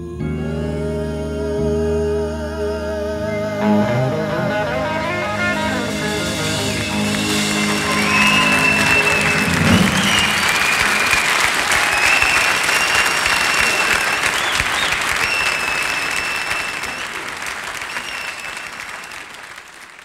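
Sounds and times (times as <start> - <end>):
high whistles: 4.2 - 19.5
audience applause: 4.3 - 20.0.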